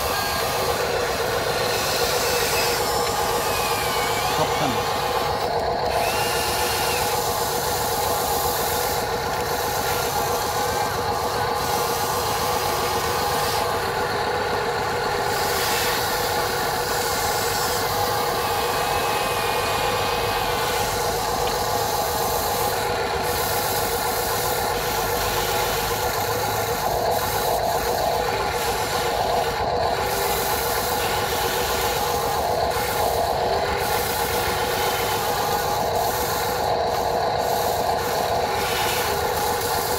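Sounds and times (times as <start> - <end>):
toy excavator motors whining: 0.0 - 39.9.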